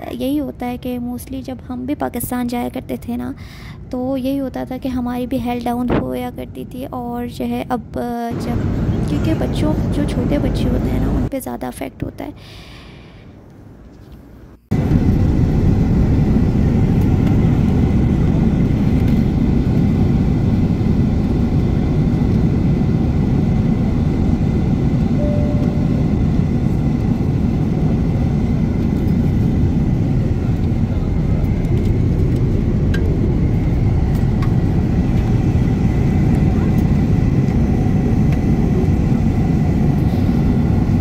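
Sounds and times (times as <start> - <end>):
jet engine and airflow rush: 8.3 - 11.3, 14.7 - 41.0
faint high whine: 25.1 - 36.8.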